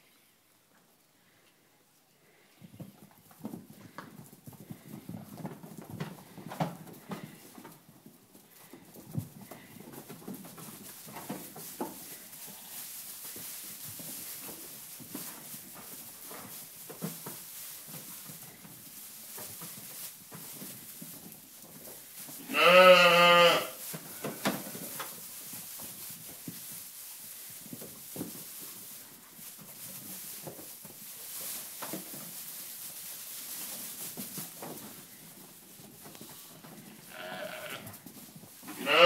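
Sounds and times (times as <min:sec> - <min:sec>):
small hooves tapping in straw: 0:00.1 - 0:39.0
rustling in straw: 0:02.2 - 0:39.0
lamb bleating: 0:22.4 - 0:24.4, 0:37.1 - 0:37.9, 0:38.7 - 0:39.0.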